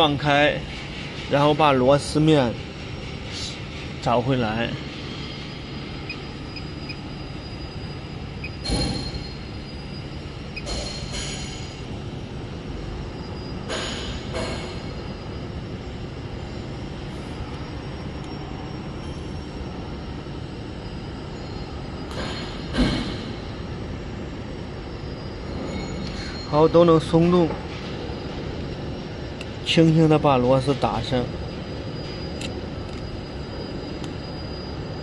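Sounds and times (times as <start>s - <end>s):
machine humming: 4.7s - 27.1s.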